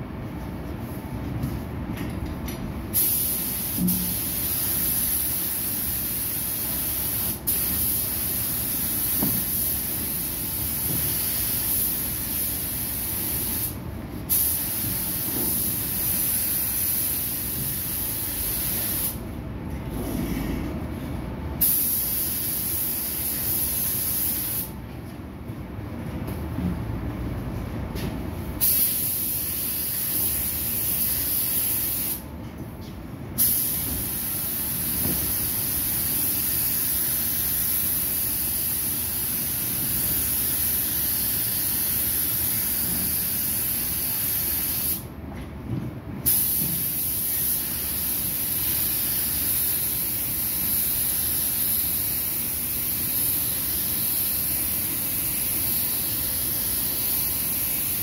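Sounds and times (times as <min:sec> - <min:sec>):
spray gun hissing: 0:03.0 - 0:19.2, 0:21.6 - 0:24.7, 0:28.6 - 0:32.2, 0:33.4 - 0:45.0, 0:46.3 - 0:58.0.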